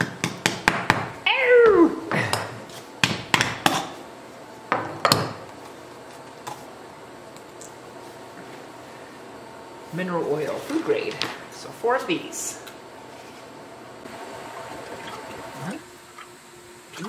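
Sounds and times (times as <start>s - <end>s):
person crying ow: 1.3s - 2.5s.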